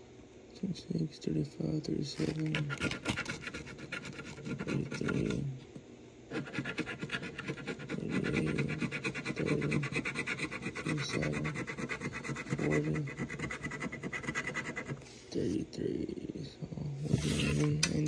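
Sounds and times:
lottery ticket being scratched: 0:02.1 - 0:05.5, 0:06.3 - 0:15.0, 0:17.1 - 0:17.8.

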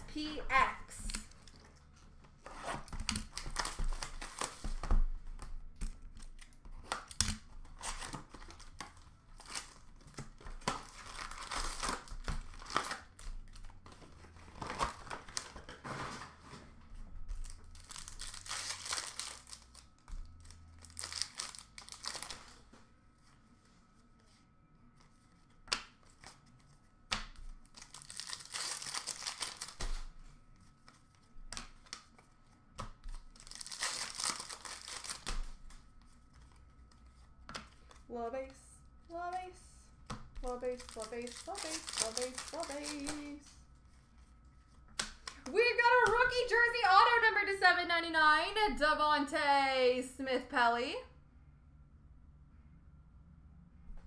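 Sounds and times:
wrappers torn and crinkled: 0:02.7 - 0:04.9, 0:06.1 - 0:15.8, 0:17.3 - 0:22.6, 0:27.6 - 0:30.1, 0:33.1 - 0:35.6, 0:40.4 - 0:43.4.

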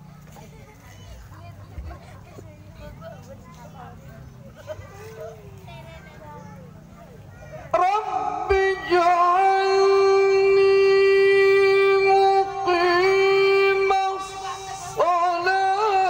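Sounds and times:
man chanting into a microphone: 0:07.7 - 0:16.0.

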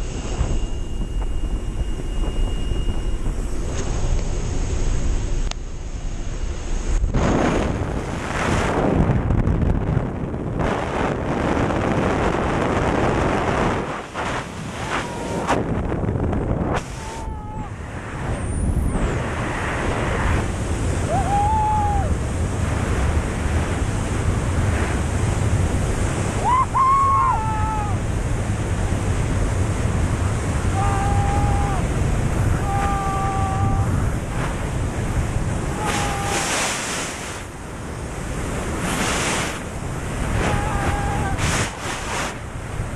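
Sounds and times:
wind rushing over microphone: 0:00.0 - 0:42.9
people shouting: 0:14.8 - 0:15.5, 0:30.8 - 0:31.9, 0:32.6 - 0:34.0, 0:35.7 - 0:36.7, 0:40.4 - 0:41.4.

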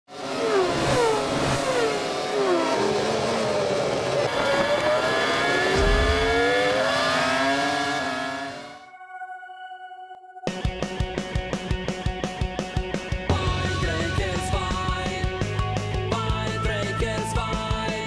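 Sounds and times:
engine revving with rising whine: 0:00.1 - 0:08.8
race cars whizzing past: 0:00.2 - 0:08.8
low boom: 0:05.7 - 0:06.8.

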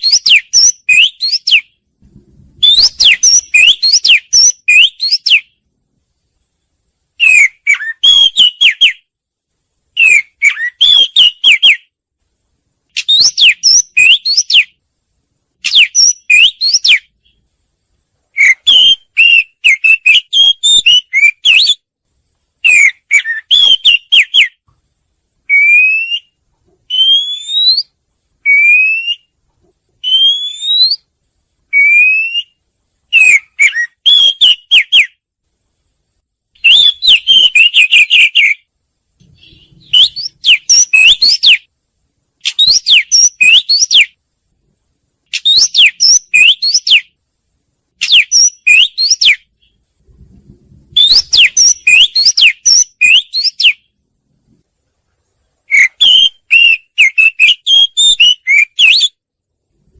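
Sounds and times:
bird singing whistled notes: 0:00.0 - 0:01.8, 0:02.6 - 0:05.6, 0:07.2 - 0:09.1, 0:10.0 - 0:11.9, 0:13.0 - 0:14.8, 0:15.6 - 0:17.4, 0:18.3 - 0:21.9, 0:22.6 - 0:24.6, 0:25.5 - 0:29.4, 0:30.0 - 0:31.1, 0:31.7 - 0:35.2, 0:36.6 - 0:41.7, 0:42.4 - 0:44.2, 0:45.3 - 0:47.2, 0:48.0 - 0:49.8, 0:50.9 - 0:53.9, 0:55.7 - 0:59.2.

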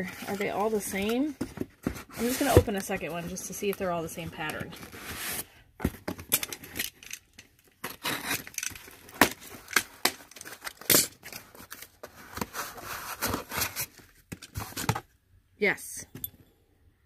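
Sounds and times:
cardboard rustling and scraping: 0:00.0 - 0:06.7, 0:07.8 - 0:15.1
tape and cardboard flaps tearing: 0:07.8 - 0:11.5.

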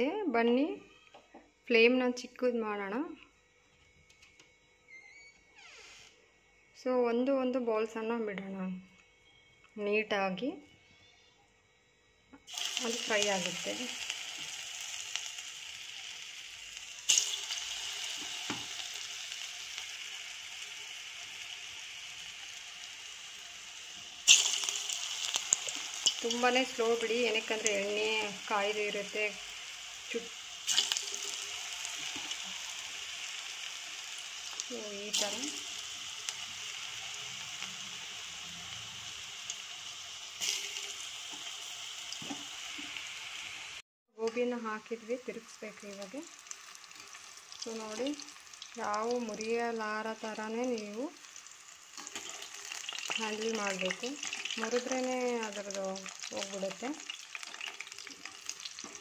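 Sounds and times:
food deep-frying in hot oil: 0:12.4 - 0:59.0.

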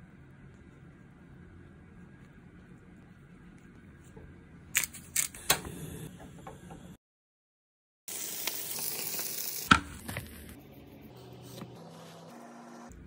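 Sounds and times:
bacon sizzling: 0:08.1 - 0:10.4.

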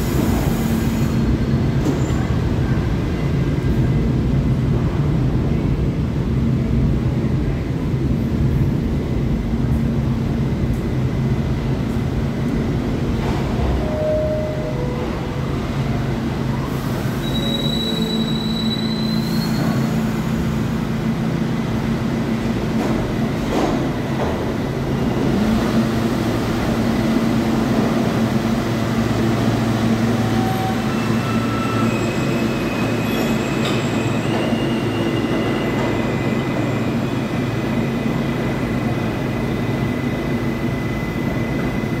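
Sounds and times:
subway train rumbling: 0:00.0 - 0:42.0
high wheel squeals: 0:17.0 - 0:20.0, 0:30.2 - 0:37.2.

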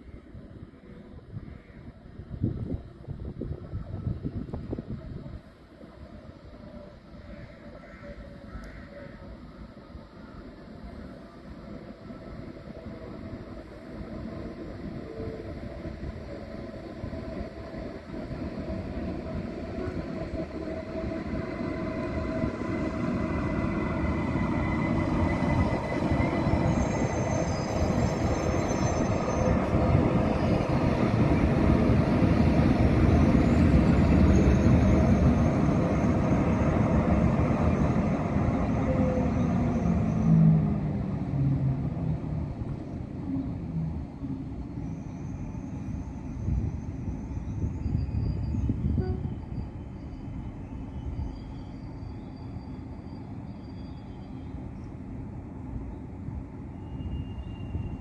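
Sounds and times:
high-speed train rolling in: 0:00.0 - 0:58.0
brief high squeal: 0:44.8 - 0:54.6, 0:56.7 - 0:58.0.

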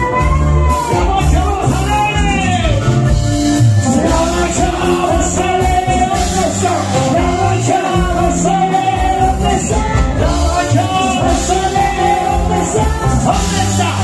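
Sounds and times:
live band music: 0:00.0 - 0:14.0
man and woman singing: 0:03.8 - 0:14.0.

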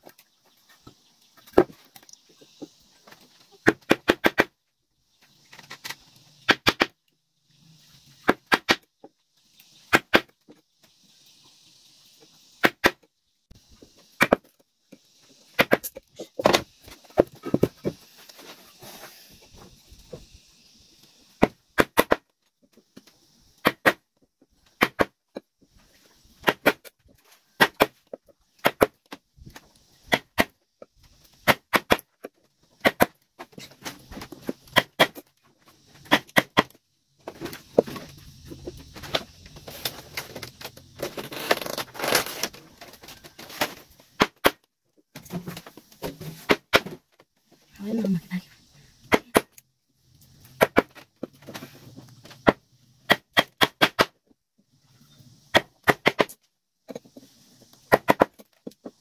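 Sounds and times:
scraping and rustling: 0:15.2 - 0:20.3, 0:37.2 - 0:44.2.

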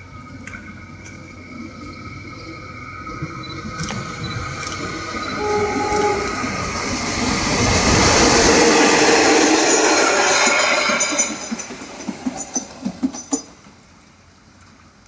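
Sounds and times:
locomotive engine: 0:00.0 - 0:14.0
train wheels on rails: 0:00.0 - 0:15.0
train horn: 0:05.4 - 0:06.6.

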